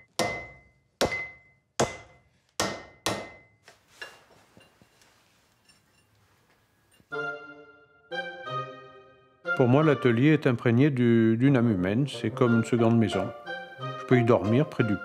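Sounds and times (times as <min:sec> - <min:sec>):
hammer striking iron on anvil: 0:00.0 - 0:03.6
faint workshop noise: 0:00.0 - 0:07.2
light metal clink: 0:04.0 - 0:07.1.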